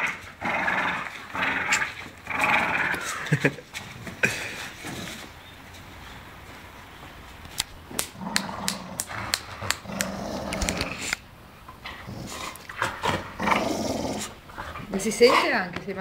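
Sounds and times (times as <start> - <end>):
dog growling: 8.1 - 11.2, 11.9 - 15.7.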